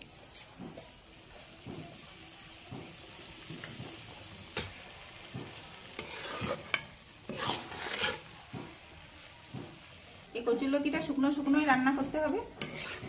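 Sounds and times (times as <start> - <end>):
food sizzling in a pan: 0.0 - 13.0
spatula scraping a pan: 2.9 - 9.9, 11.3 - 13.0.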